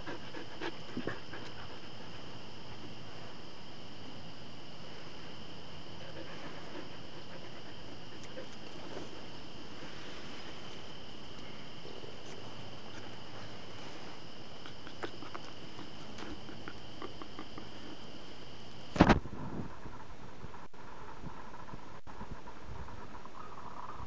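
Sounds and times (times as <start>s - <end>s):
insect chirring: 0.0s - 24.0s.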